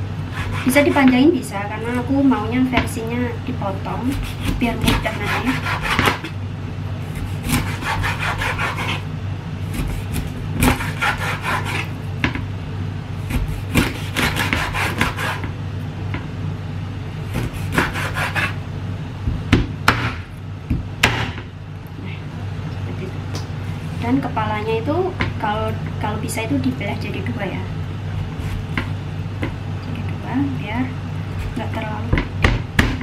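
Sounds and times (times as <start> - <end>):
cleaver sawing through fish: 4.2 - 6.2, 7.2 - 9.0, 9.8 - 11.9, 17.4 - 18.6.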